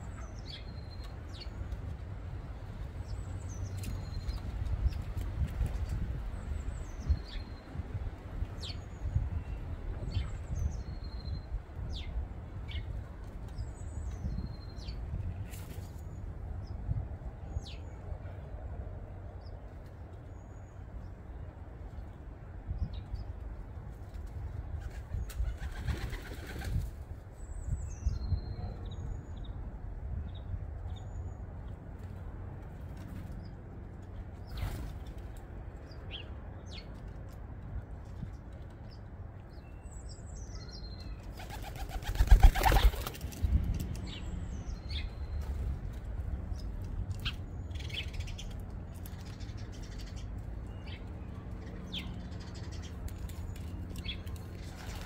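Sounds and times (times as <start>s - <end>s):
wings flapping: 24.8s - 26.9s, 41.3s - 44.0s, 53.2s - 55.0s.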